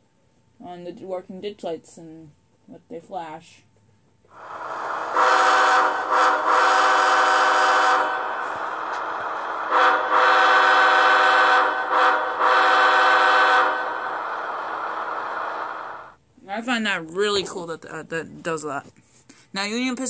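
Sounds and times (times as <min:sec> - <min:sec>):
model locomotive air horn: 0:05.0 - 0:14.4.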